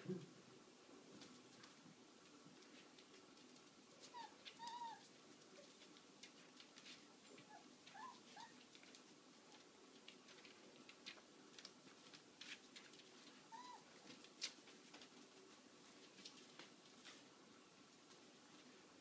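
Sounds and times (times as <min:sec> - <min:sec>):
dog whimpering: 0:04.0 - 0:05.1, 0:07.4 - 0:08.6, 0:13.5 - 0:13.9.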